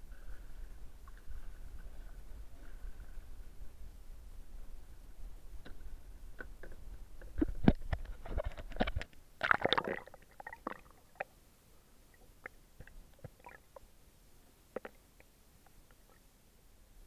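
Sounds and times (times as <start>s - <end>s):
small underwater clicks: 5.6s - 11.3s
water splashing and bubbling: 8.6s - 11.4s, 12.1s - 13.8s.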